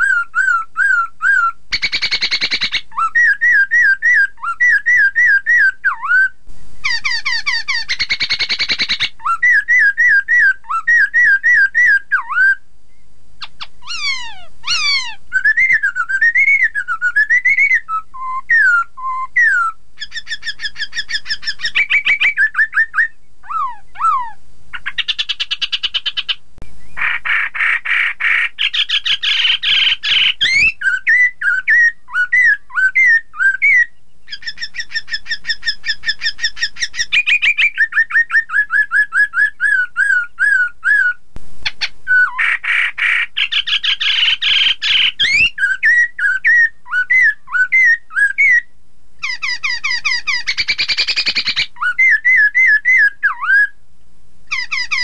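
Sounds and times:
bird rapid chattering: 0:00.0 - 0:05.0, 0:06.8 - 0:12.0, 0:19.4 - 0:26.4, 0:27.0 - 0:33.2, 0:34.3 - 0:40.6, 0:41.7 - 0:48.0, 0:49.2 - 0:53.1, 0:54.5 - 0:55.0
bird singing whistled phrases: 0:00.0 - 0:41.2, 0:42.1 - 0:53.8, 0:54.5 - 0:55.0.

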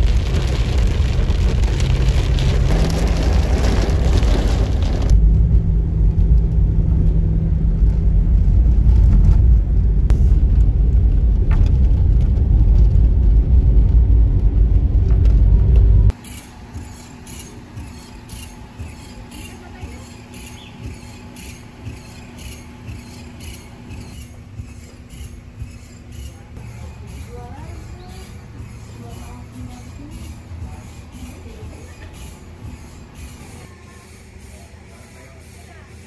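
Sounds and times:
rain on windshield: 0:00.0 - 0:05.2
low road rumble: 0:00.0 - 0:34.7.

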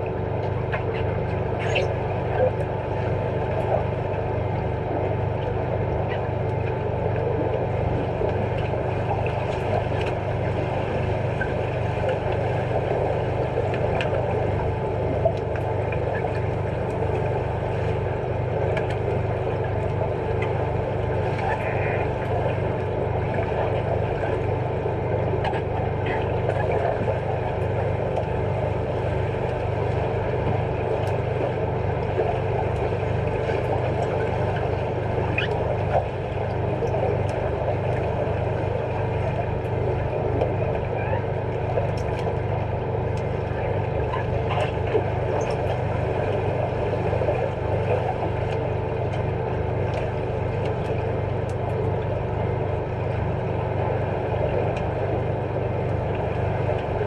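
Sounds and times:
bubbles: 0:00.0 - 0:51.3
underwater pool drone: 0:00.0 - 0:57.0
faint underwater clicks and knocks: 0:25.4 - 0:28.3, 0:41.5 - 0:42.4.

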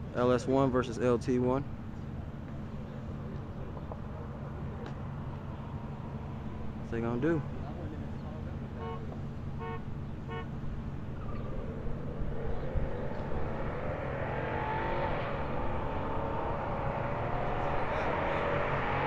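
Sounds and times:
car engines accelerating hard: 0:01.7 - 0:19.0
car horn toots: 0:08.8 - 0:10.5.

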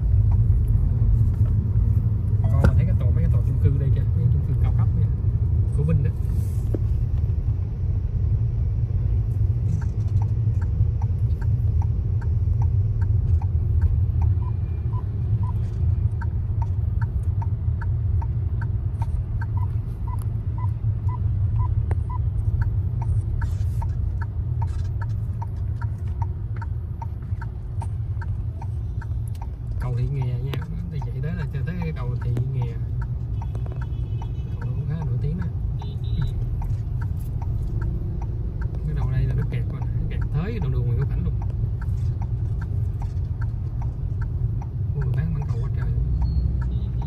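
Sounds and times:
car cabin road rumble: 0:00.0 - 0:47.0
turn signal ticking: 0:00.0 - 0:47.0.

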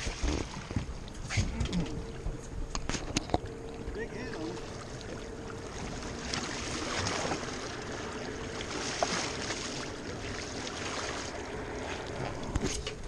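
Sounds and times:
water splashing and sloshing: 0:00.0 - 0:13.0.

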